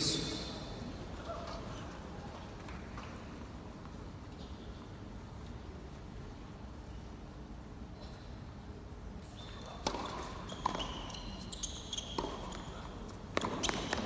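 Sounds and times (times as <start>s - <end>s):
shoes squeaking on court: 9.2s - 14.0s.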